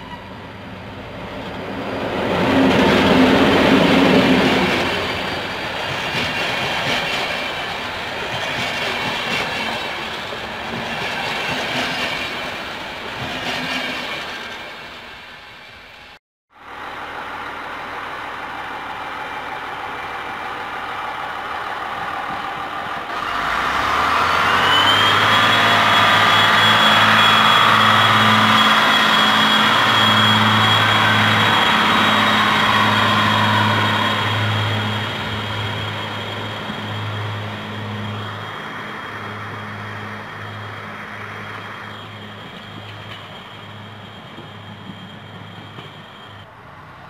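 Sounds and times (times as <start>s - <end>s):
high engine whine: 21.8s - 46.5s.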